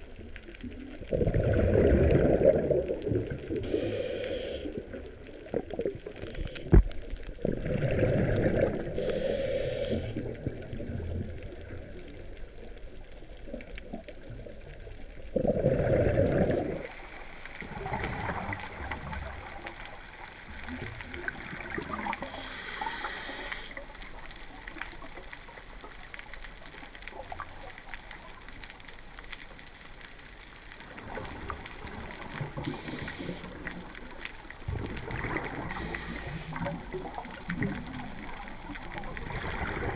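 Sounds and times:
exhaled bubbles gurgling: 0:00.0 - 0:28.9, 0:30.7 - 0:39.9
hissing regulator inhalations: 0:03.6 - 0:05.0, 0:08.9 - 0:10.3, 0:22.1 - 0:23.8, 0:32.6 - 0:33.7, 0:35.6 - 0:36.7.

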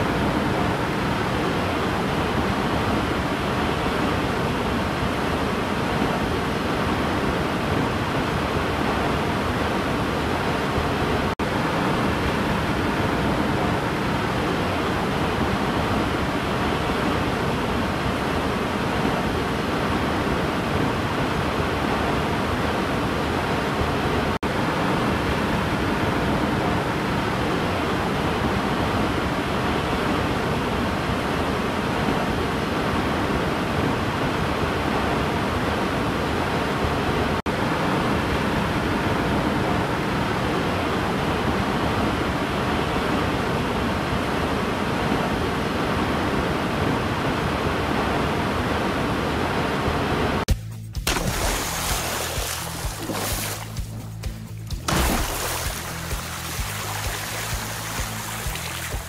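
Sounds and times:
waterfall rushing: 0:51.1 - 0:53.8, 0:54.8 - 0:59.0.

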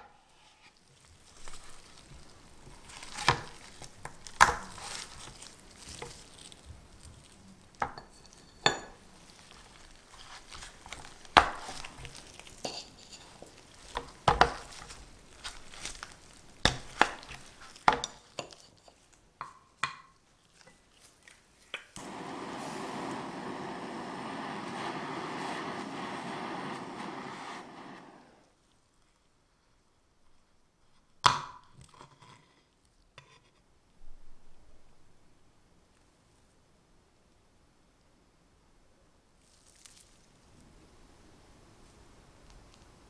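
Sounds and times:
kitchen torch flame hissing: 0:22.0 - 0:28.6.

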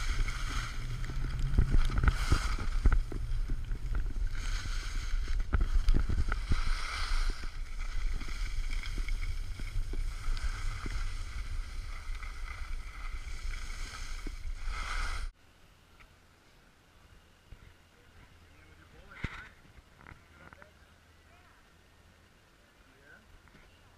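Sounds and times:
wind buffeting microphone: 0:00.0 - 0:15.3
skis hissing over snow: 0:00.0 - 0:15.4
faint low background noise: 0:14.9 - 0:23.9.

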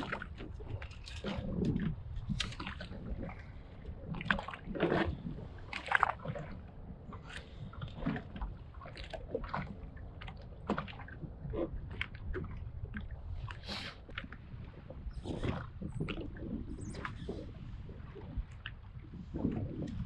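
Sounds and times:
small waves slapping hull: 0:00.0 - 0:20.0
wind rumble on microphone: 0:00.0 - 0:20.0.

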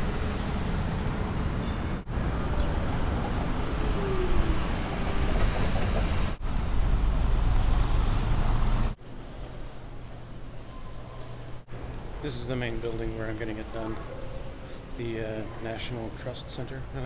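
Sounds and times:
traffic rumble: 0:00.0 - 0:17.0.

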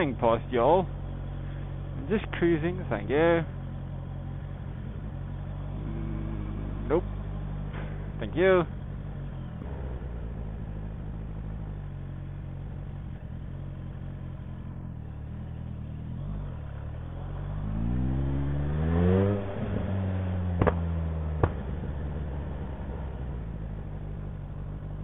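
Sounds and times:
motorcycle engine open exhaust: 0:03.6 - 0:17.4
exhaust pops: 0:20.5 - 0:24.2.

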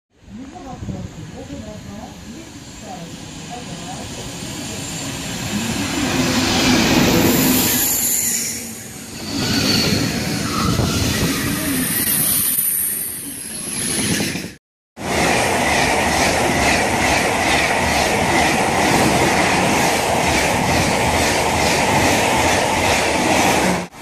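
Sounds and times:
train wheels rushing on rail: 0:13.3 - 0:24.0.

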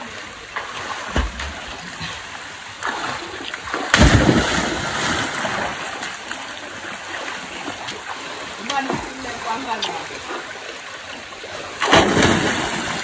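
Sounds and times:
water churning: 0:00.0 - 0:13.0
person plunging into water: 0:02.8 - 0:06.2, 0:11.7 - 0:13.0
small splashes from swimmers: 0:02.8 - 0:10.7, 0:11.8 - 0:13.0.

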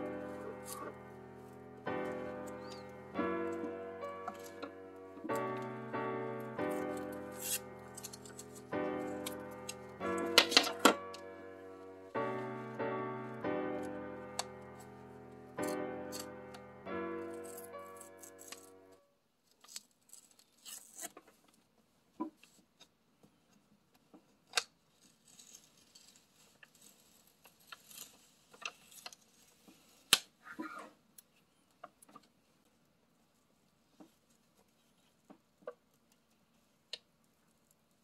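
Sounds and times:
paper rustling: 0:13.8 - 0:18.9
masking tape peeling: 0:19.6 - 0:21.2.

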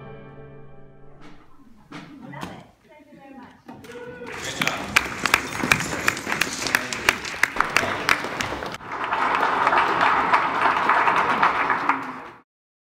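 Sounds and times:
people clapping: 0:03.8 - 0:12.5.

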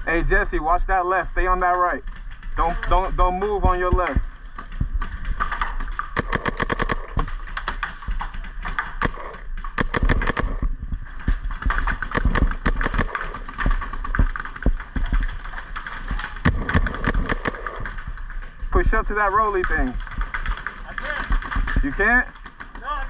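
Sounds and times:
paintball markers firing: 0:01.6 - 0:23.0.

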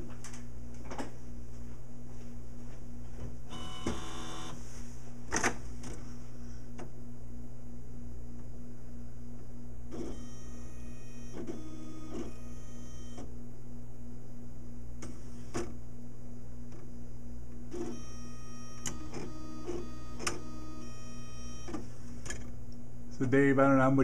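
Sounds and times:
machine low hum: 0:00.0 - 0:24.0
robotic arm motors whining: 0:09.9 - 0:13.3, 0:17.8 - 0:22.1.

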